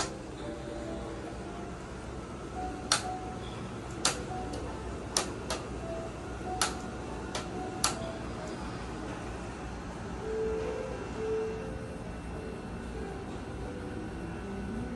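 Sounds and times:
steady low hum: 0.0 - 14.9
sharp clicks: 2.9 - 3.1, 4.0 - 5.7, 6.6 - 8.0.

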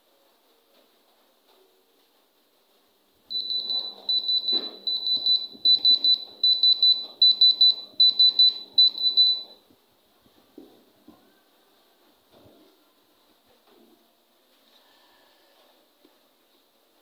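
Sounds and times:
gem tester beeping: 3.3 - 9.6.

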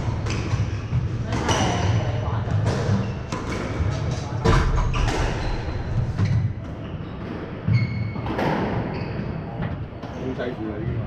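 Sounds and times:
squash ball hits: 0.0 - 5.6
shoes squeaking on wooden floor: 2.7 - 9.6.

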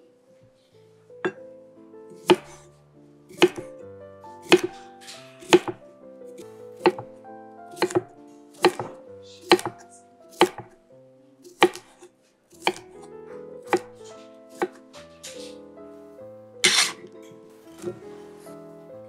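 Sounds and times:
soft background music: 0.0 - 19.0
knife chopping on wooden board: 2.2 - 2.7, 3.3 - 3.8, 4.4 - 4.8, 5.4 - 5.8, 6.8 - 10.8, 11.4 - 13.0, 13.7 - 14.8, 16.6 - 17.1, 17.7 - 18.0.

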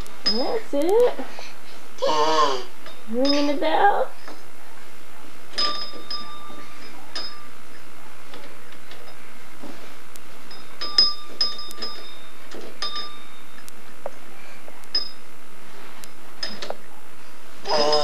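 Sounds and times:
small metal bell dinging: 5.6 - 7.6, 10.5 - 13.6, 14.9 - 15.2.

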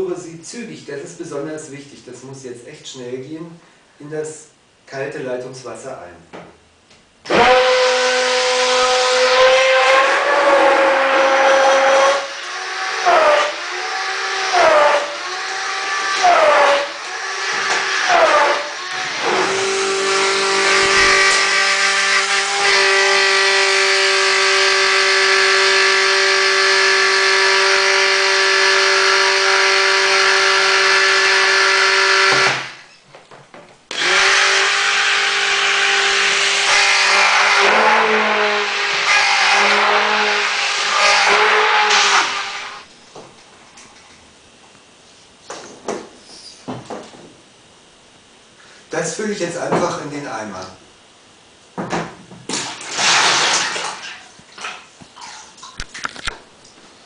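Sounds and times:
immersion blender motor whine: 7.3 - 32.9, 33.9 - 42.9.

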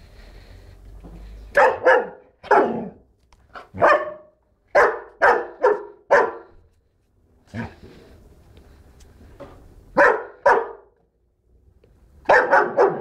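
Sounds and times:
dog barking: 1.5 - 3.0, 3.6 - 6.6, 10.0 - 11.0, 12.2 - 13.0.

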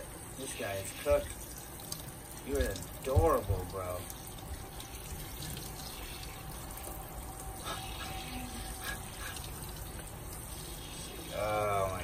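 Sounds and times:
tap water splashing in a sink: 0.8 - 7.3, 9.2 - 11.2.

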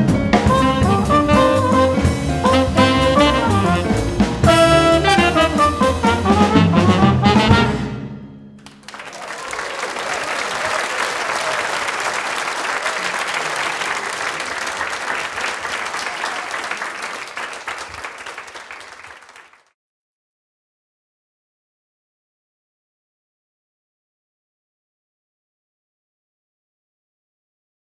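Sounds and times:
swing jazz band playing: 0.0 - 8.1
audience applauding: 8.6 - 19.8.

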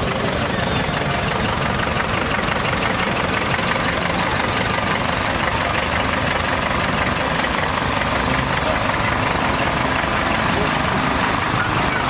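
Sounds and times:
tractor engine driving past: 0.0 - 12.0.

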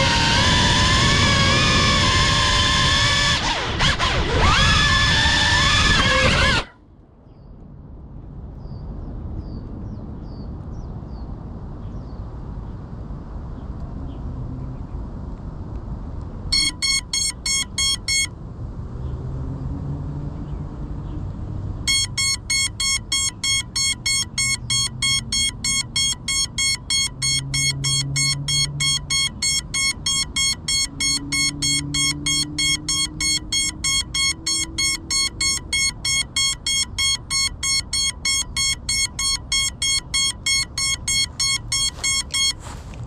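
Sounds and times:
rapid high beeps: 0.0 - 0.4, 16.6 - 18.3, 21.9 - 43.0.

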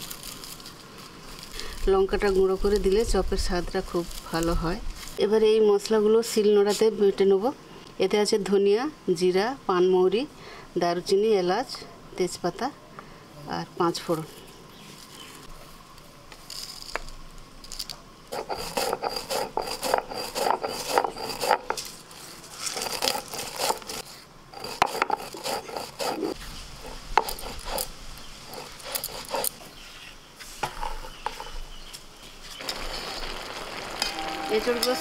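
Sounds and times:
stone roller grinding spices: 18.3 - 22.0, 22.6 - 29.8, 32.6 - 35.0.

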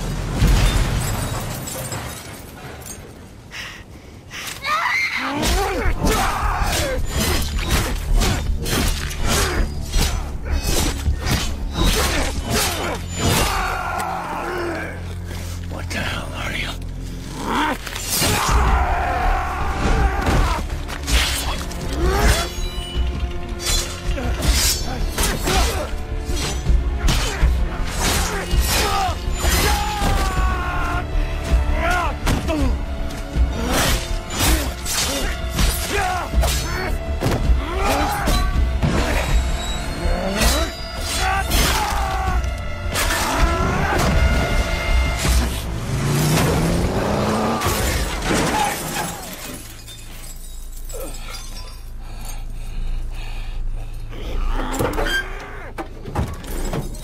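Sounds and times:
glass shattering: 0.3 - 3.2, 47.6 - 52.0
dramatic score music: 3.3 - 57.0.

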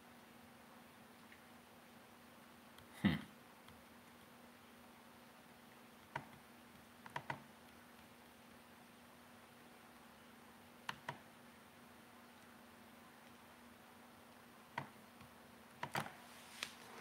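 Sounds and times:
faint steady hum: 0.0 - 17.0
computer mouse clicking: 6.0 - 8.4, 10.8 - 11.3, 14.3 - 16.2.

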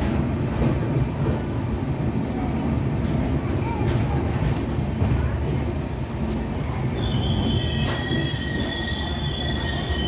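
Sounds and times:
train wheels rumbling on rails: 0.0 - 10.0
lower wheel squeal: 6.9 - 10.0
high metallic wheel squeal: 7.0 - 10.0.

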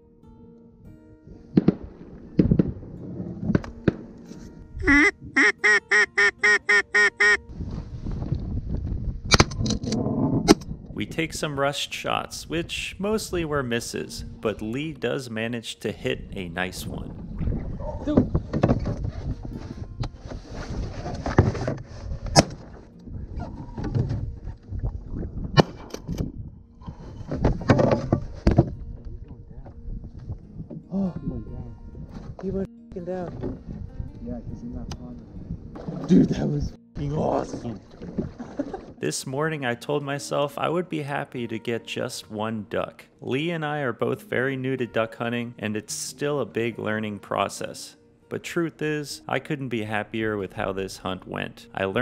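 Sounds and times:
duck call quacks: 4.8 - 7.4.

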